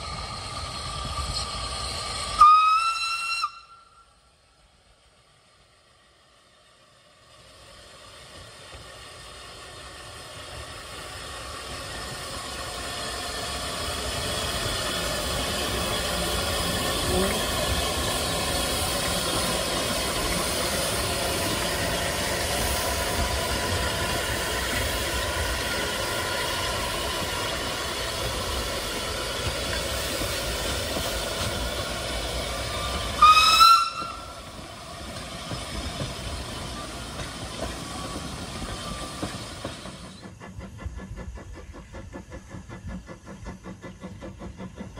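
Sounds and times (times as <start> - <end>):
steam hissing: 0.0 - 44.9
steam whistle blast: 2.4 - 4.2, 32.7 - 34.4.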